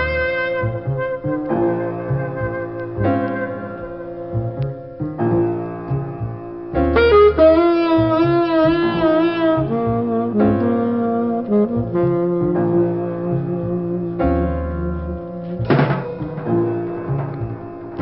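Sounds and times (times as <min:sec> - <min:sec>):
slow instrumental music: 0:00.0 - 0:18.0.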